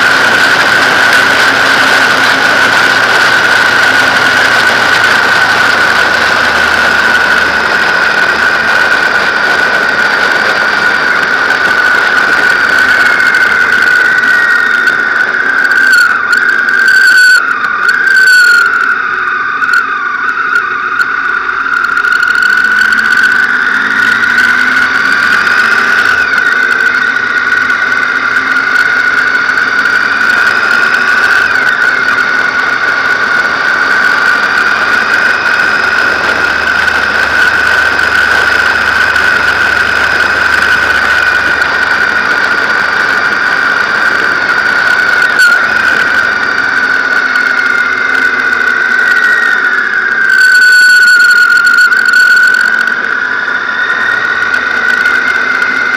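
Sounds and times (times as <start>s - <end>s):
wind rush: 0.0s - 15.9s, 22.4s - 55.9s
faint rising and falling whines: 0.0s - 55.9s
motorcycle high-pitched whine: 0.0s - 55.9s.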